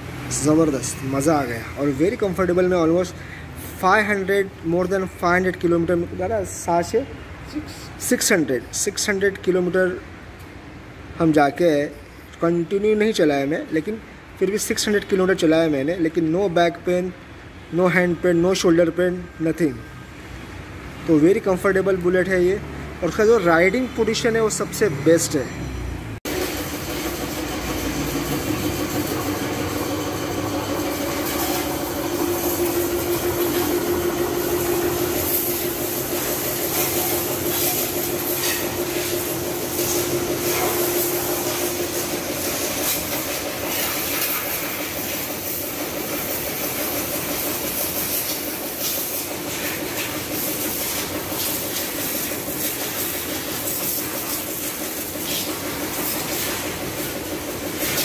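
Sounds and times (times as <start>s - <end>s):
pressure washer pump hum: 0.0s - 5.8s, 26.2s - 58.0s
high-pressure water jet hissing: 26.3s - 58.0s.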